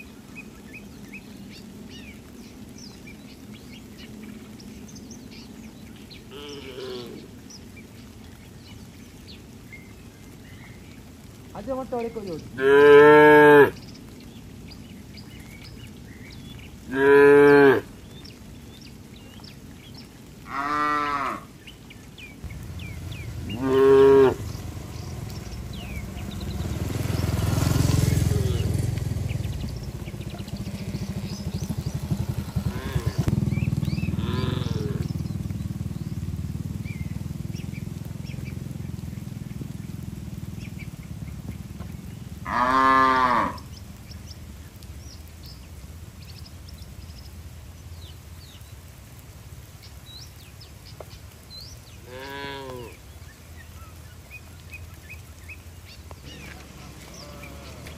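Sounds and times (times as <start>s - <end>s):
cows mooing: 6.3s - 7.4s, 12.6s - 13.8s, 16.9s - 17.9s, 20.4s - 21.5s, 23.0s - 29.0s, 30.2s - 35.2s, 42.4s - 43.7s, 52.0s - 53.0s, 56.2s - 57.9s
low rumbling noise: 21.4s - 48.4s.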